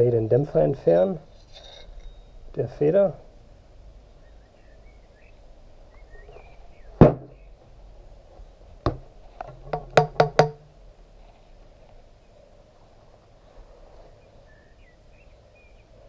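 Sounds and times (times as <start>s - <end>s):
faint bird chirps: 4.2s - 7.6s, 14.0s - 16.0s
metal tube knocked ringing: 9.7s - 10.7s.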